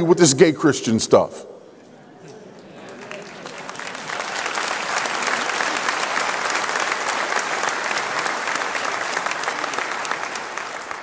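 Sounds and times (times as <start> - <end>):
large audience applauding: 2.8 - 11.0.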